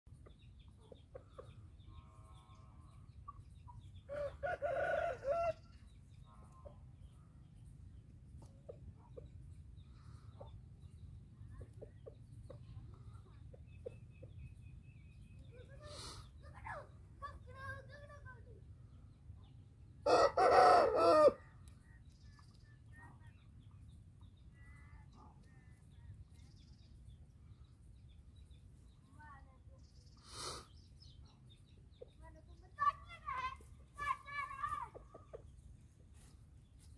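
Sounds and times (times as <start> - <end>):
small bird chirps: 0.1 - 4.6, 5.3 - 19.8
rooster crowing: 4.2 - 5.6, 20.0 - 21.4.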